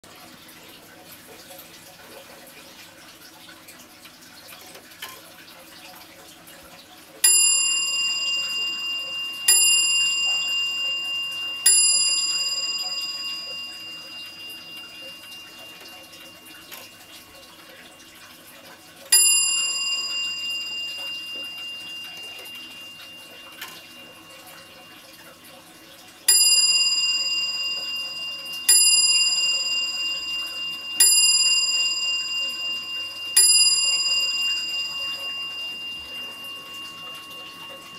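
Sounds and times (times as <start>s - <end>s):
wall clock striking bell: 7.2s - 17.6s, 19.1s - 25.4s, 26.3s - 37.9s.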